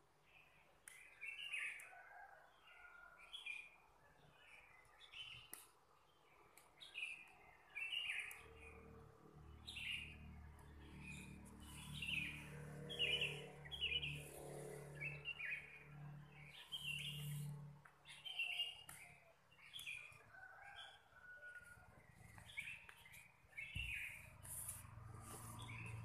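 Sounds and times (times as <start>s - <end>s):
small birds chirping: 0.3s - 2.1s, 2.8s - 26.0s.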